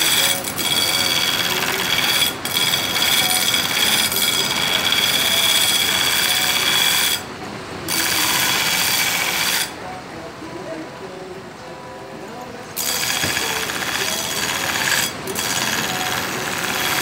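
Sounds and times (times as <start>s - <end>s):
belt grinder grinding steel: 0.0s - 7.3s, 7.9s - 9.8s, 12.8s - 17.0s.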